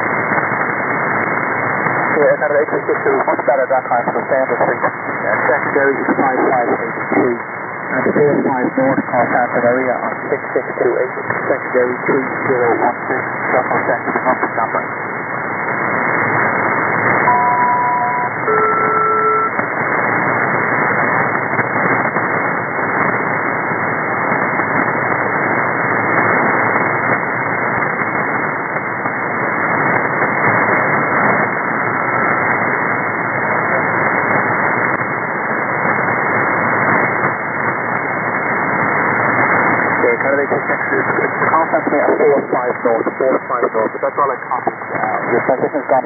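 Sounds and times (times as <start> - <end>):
radio static and hiss: 0.0 - 46.0
two-note tones: 17.3 - 19.5.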